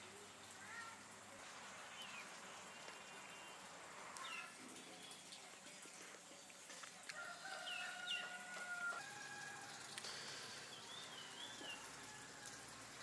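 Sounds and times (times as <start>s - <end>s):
small birds chirping: 0.2s - 8.6s, 9.9s - 12.2s
faint rooster crowing: 7.1s - 10.0s, 11.1s - 13.0s.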